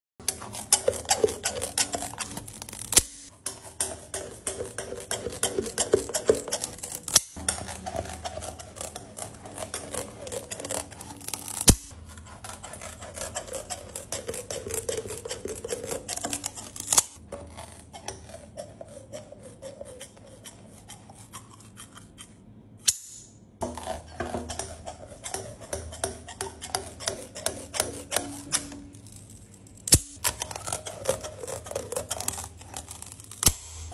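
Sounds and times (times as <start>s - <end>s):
shears snipping candy: 0.2s - 17.2s, 28.0s - 33.9s
sharp clicks of blades: 6.3s - 7.4s, 11.4s - 11.9s, 29.9s - 30.4s.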